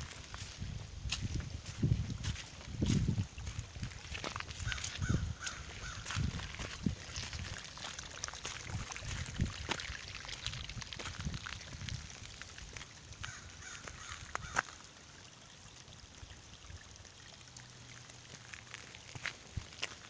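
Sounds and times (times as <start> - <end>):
water trickling along gravel: 0.0 - 20.0.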